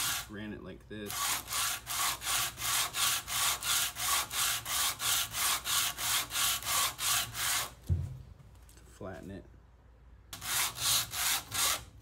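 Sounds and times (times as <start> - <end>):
wood rubbing on sandpaper: 0.0 - 0.3.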